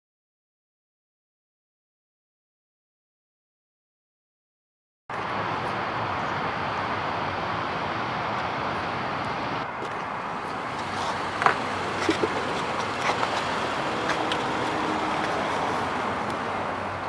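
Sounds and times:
road traffic hiss: 0:05.1 - 0:17.0.

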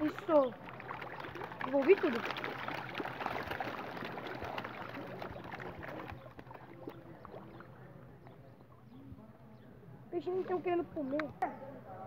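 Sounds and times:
fish splashing at water surface: 0:00.0 - 0:07.8.

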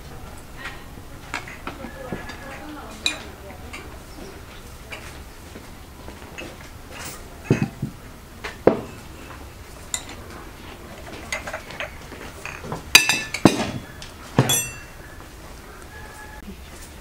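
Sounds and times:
metal spoon clinking on plates: 0:02.2 - 0:03.9, 0:09.9 - 0:10.2, 0:11.1 - 0:13.8, 0:14.4 - 0:15.0.

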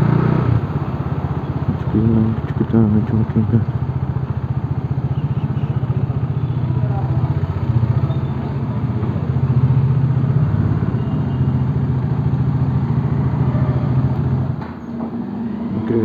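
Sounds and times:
motorcycle engine idling: 0:00.6 - 0:14.6.

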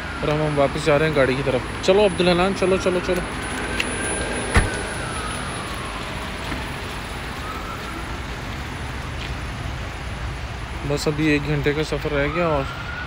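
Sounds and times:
distant siren wailing: 0:00.0 - 0:08.9, 0:11.8 - 0:13.0
traffic on wet roads: 0:00.0 - 0:13.0.

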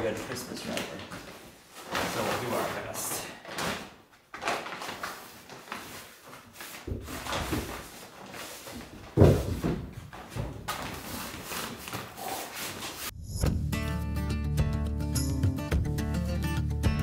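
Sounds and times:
plastic tarp crinkling: 0:00.0 - 0:09.7.

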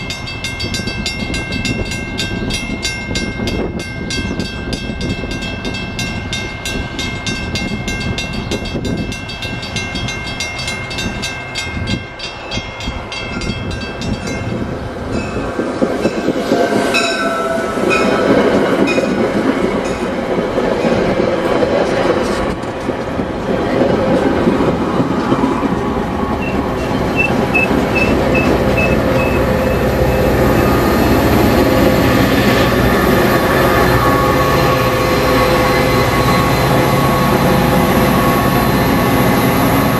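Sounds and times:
crossing bells ringing: 0:00.0 - 0:21.2, 0:25.5 - 0:39.9
train rumble and wheel clatter: 0:00.0 - 0:39.9
train horn: 0:16.4 - 0:19.0, 0:31.6 - 0:39.1.

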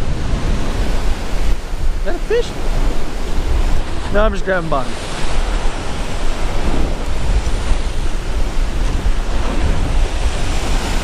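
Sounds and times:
ocean surf breaking on rocks: 0:00.0 - 0:11.0
wind buffeting microphone: 0:00.0 - 0:11.0.

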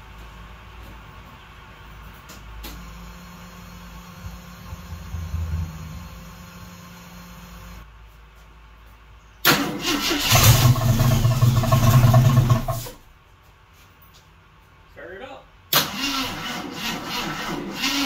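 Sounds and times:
car engine cranking on starter: 0:09.4 - 0:13.0, 0:15.7 - 0:18.0.

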